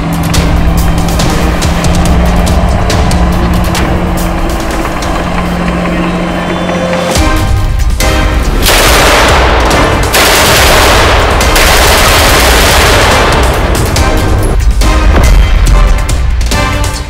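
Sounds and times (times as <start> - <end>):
submachine gun automatic fire: 8.7 - 13.6.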